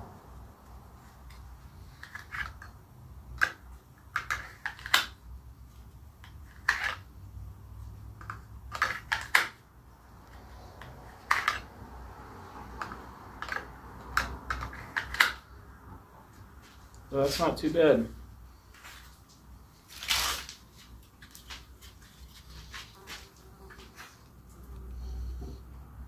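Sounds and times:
plastic sheath clicks and snaps: 12.8 - 15.4.

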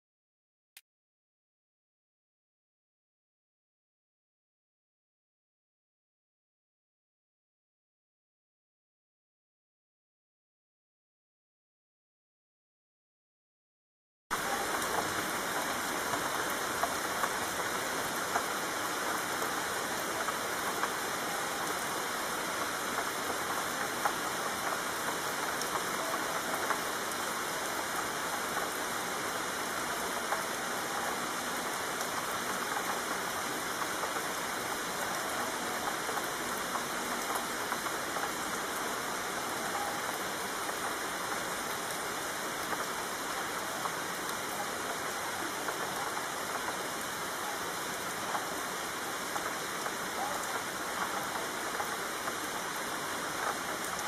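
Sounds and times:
heavy rain falling: 14.3 - 54.0.

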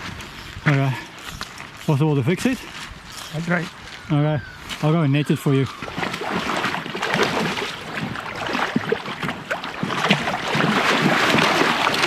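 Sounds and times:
fish splashing in water: 5.7 - 12.0.

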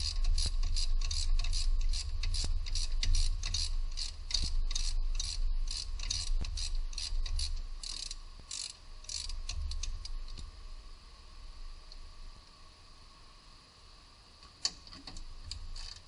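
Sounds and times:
ratchet wrench clicking: 0.0 - 10.4, 15.5 - 16.0.

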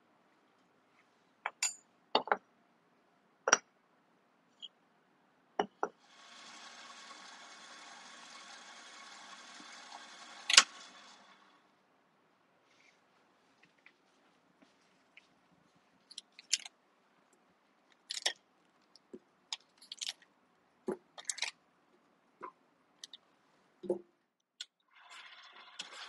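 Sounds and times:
stand mixer humming: 6.0 - 11.7.

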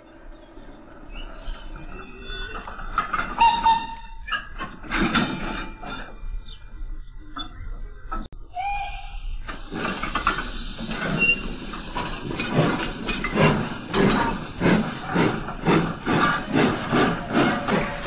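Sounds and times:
steam hissing: 8.6 - 18.0.

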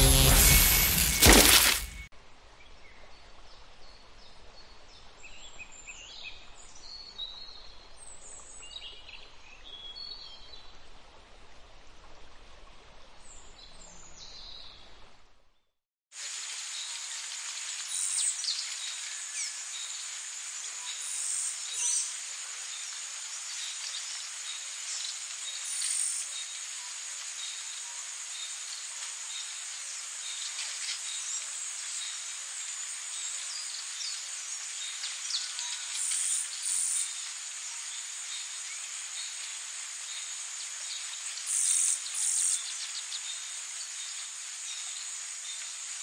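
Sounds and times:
high insect drone: 0.0 - 2.1
faint hiss: 16.2 - 46.0.

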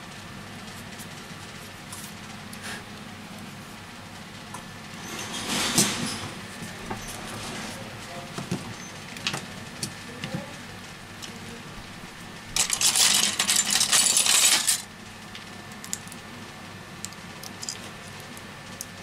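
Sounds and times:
small parts clicking: 12.6 - 14.8
small parts rattling clatter: 12.6 - 14.9.

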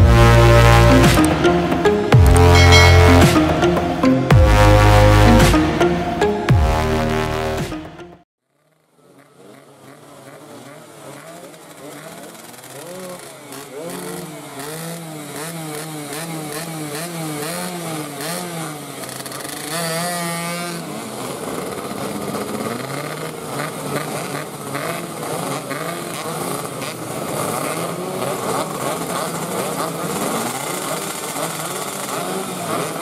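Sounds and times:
many motorcycle engines revving: 0.0 - 3.7, 8.5 - 33.0
motorcycle engine revving: 8.5 - 33.0.

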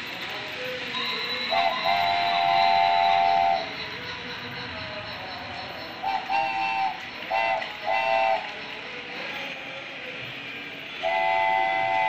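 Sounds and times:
toy train whirring on track: 0.0 - 12.0
toy train whistle tooting: 0.8 - 9.6, 10.8 - 12.0.

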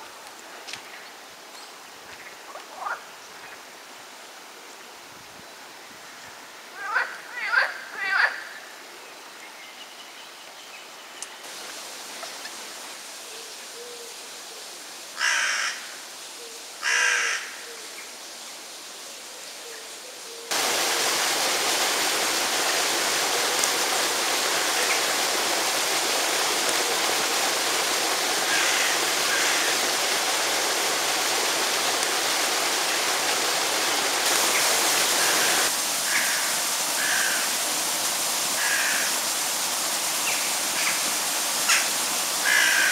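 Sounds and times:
loud steady hiss: 10.8 - 42.9.

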